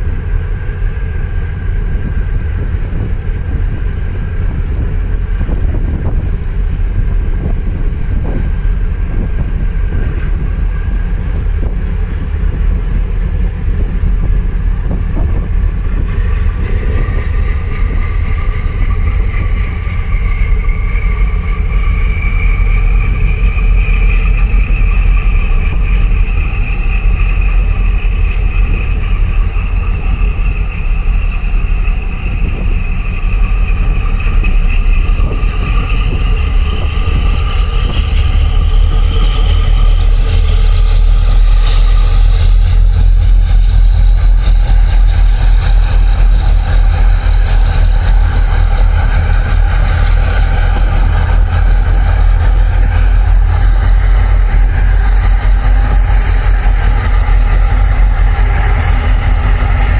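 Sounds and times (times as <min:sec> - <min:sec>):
boat engine rumbling: 0:00.0 - 0:59.9
rising whine: 0:00.0 - 0:59.9
wind buffeting microphone: 0:00.0 - 0:59.9.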